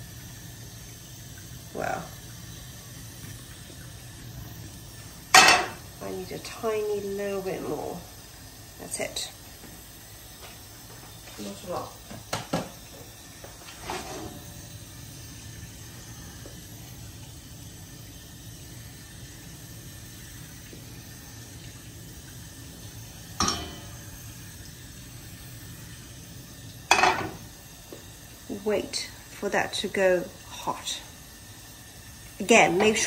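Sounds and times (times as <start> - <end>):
frying pan knocks and clanks: 5.3 - 5.8, 12.3 - 12.7, 23.4 - 24.0.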